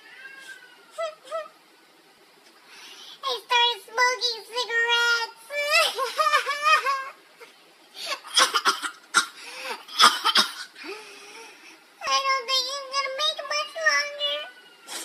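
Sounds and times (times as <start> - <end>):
girl wailing: 5.0 - 7.2
girl sobbing: 5.6 - 8.6.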